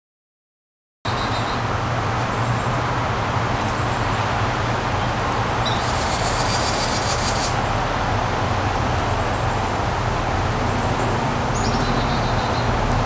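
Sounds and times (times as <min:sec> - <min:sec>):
outdoor hum and hiss: 0:01.4 - 0:11.6
faint high bird chirps: 0:05.6 - 0:07.6.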